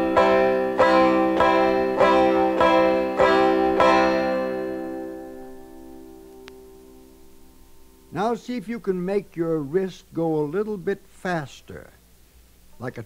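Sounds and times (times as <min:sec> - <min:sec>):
banjo strumming a chord: 0:00.0 - 0:07.2.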